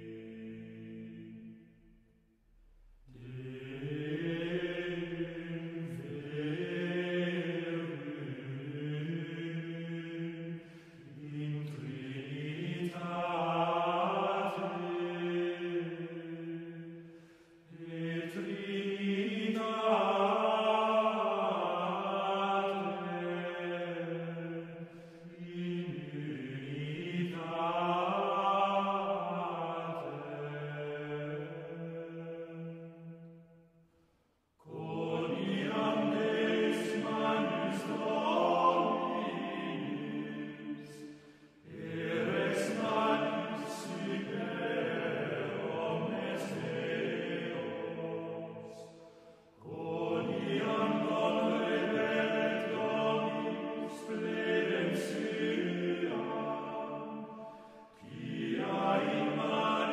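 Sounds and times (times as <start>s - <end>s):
slow sustained chanting: 0.0s - 59.9s
voices chanting long notes: 41.6s - 57.2s, 58.0s - 59.9s.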